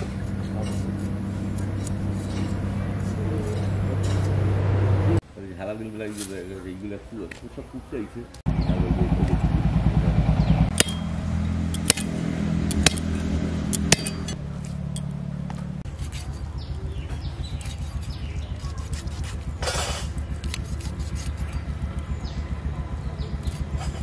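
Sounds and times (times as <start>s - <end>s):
small engine droning: 8.5s - 24.0s.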